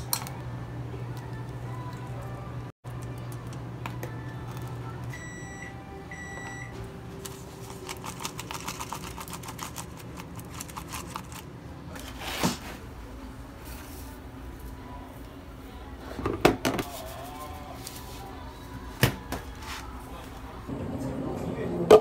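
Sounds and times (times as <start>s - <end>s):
food rattling in a paper cup: 7.3s - 12.1s.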